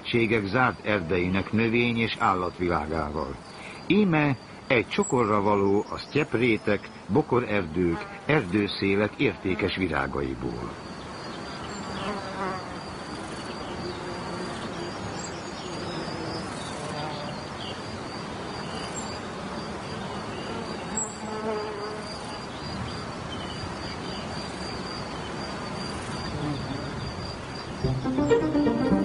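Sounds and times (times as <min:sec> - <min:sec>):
flies and bees buzzing: 0:11.9 - 0:17.4, 0:20.4 - 0:22.2, 0:25.9 - 0:27.0.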